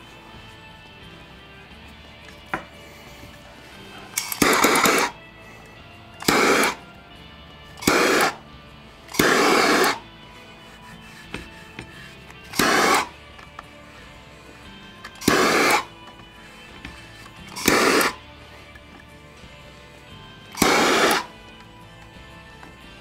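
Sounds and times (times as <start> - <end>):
propane torch hissing: 2.8 - 5.2, 6.2 - 6.8, 7.8 - 8.4, 9.0 - 10.0, 12.1 - 13.1, 14.0 - 18.3, 20.5 - 21.4.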